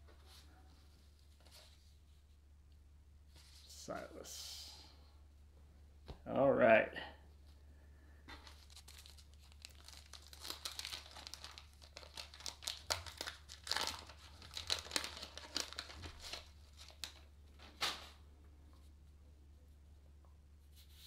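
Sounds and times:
wax paper wrapper tearing: 0:08.4 - 0:17.3.

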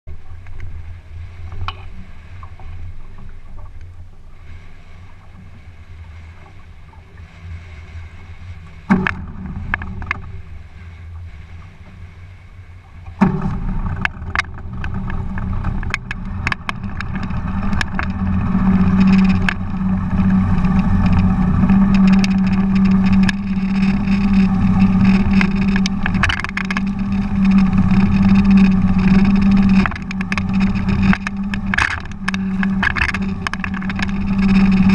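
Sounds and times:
motorboat engine: 0:00.0 - 0:34.9
water rushing past hull: 0:00.1 - 0:34.9
sharp knocks: 0:08.9 - 0:10.4, 0:13.1 - 0:18.2.

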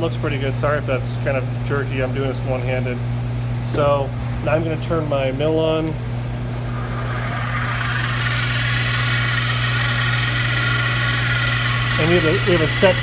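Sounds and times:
constant low hum: 0:00.0 - 0:13.0
milling machine spindle motor whirring: 0:06.5 - 0:13.0.

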